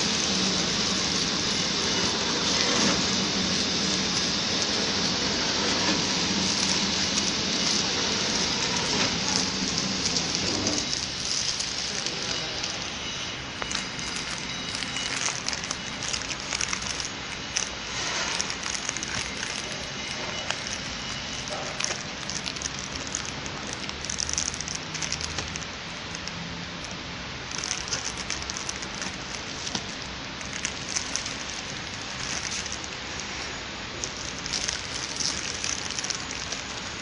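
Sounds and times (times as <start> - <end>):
plastic film crinkling: 0.0 - 37.0.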